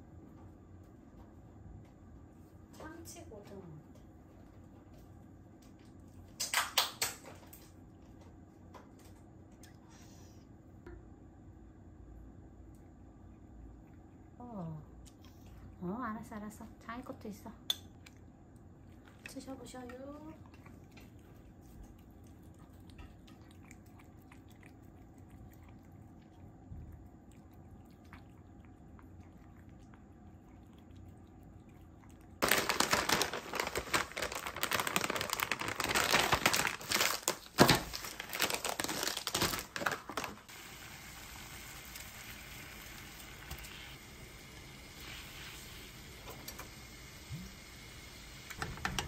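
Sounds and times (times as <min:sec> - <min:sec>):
plastic packet crinkling: 0:32.4 - 0:40.5
water boiling in a pot: 0:40.1 - 0:49.0.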